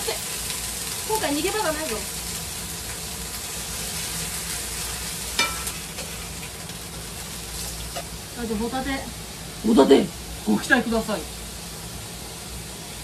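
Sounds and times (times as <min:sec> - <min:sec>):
meat sizzling on a grill: 0:00.0 - 0:13.0
tongs clinking on metal plate: 0:05.4 - 0:05.8.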